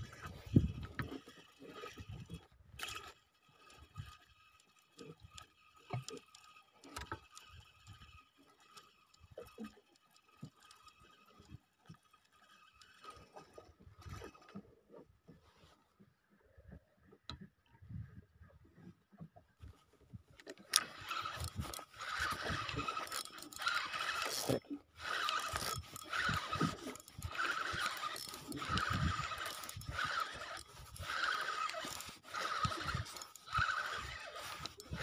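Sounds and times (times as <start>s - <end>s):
faint knocks and clicks on boat: 13.7s - 22.2s
water slapping boat hull: 19.2s - 35.0s.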